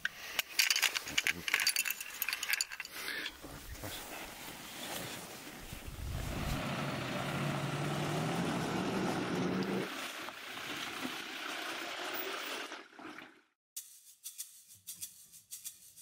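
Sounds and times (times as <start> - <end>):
vehicle engine running: 6.0 - 9.8.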